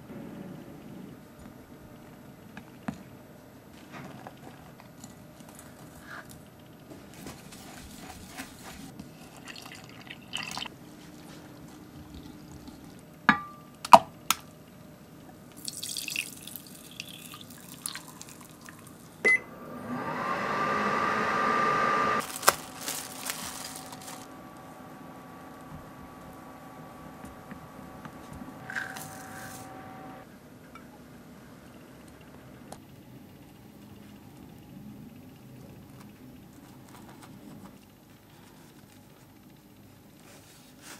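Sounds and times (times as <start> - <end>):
appliance steady hum: 0.0 - 40.9.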